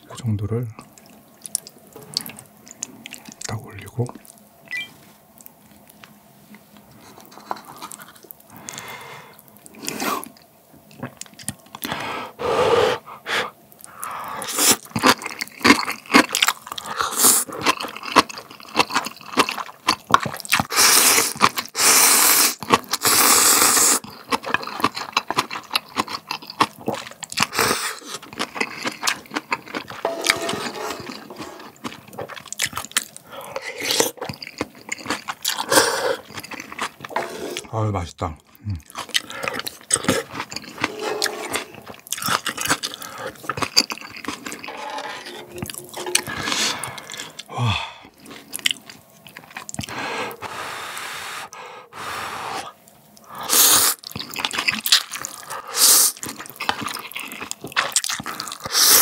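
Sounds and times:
chewing: 0:00.8 - 0:04.4, 0:05.4 - 0:08.9, 0:09.5 - 0:12.0, 0:13.8 - 0:21.8, 0:23.8 - 0:37.7, 0:38.6 - 0:50.0, 0:53.1 - 0:59.0
metal tongs scraping wooden ladle: 0:30.0 - 0:31.7, 0:37.1 - 0:37.7, 0:40.7 - 0:42.0, 0:44.5 - 0:46.8.

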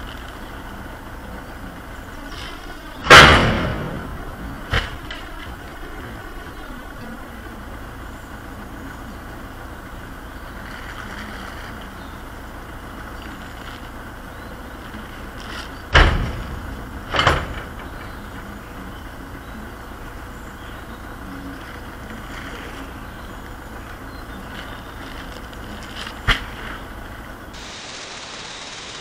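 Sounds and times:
low outdoor rumble: 0:00.0 - 0:29.0
loud thuds: 0:02.3 - 0:07.0, 0:15.2 - 0:20.3, 0:24.3 - 0:27.5.

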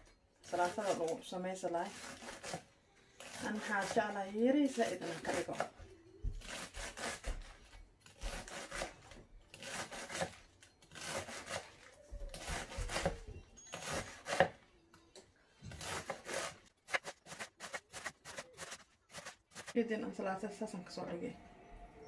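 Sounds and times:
knife shredding lettuce on board: 0:06.4 - 0:08.9, 0:11.0 - 0:13.2, 0:15.7 - 0:19.8.

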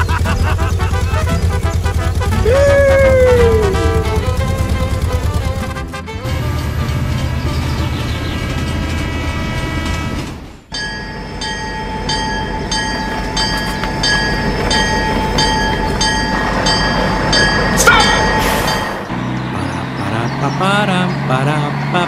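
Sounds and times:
rumbling rail noise: 0:00.0 - 0:22.0
level-crossing bell ringing: 0:10.7 - 0:19.1.

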